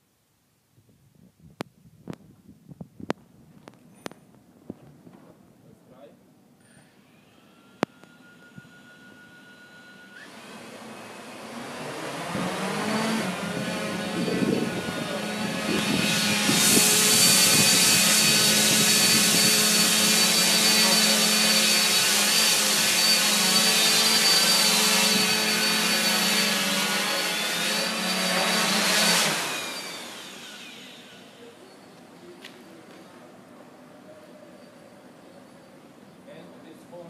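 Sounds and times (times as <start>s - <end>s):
drone propellers buzzing: 10.8s - 31.2s.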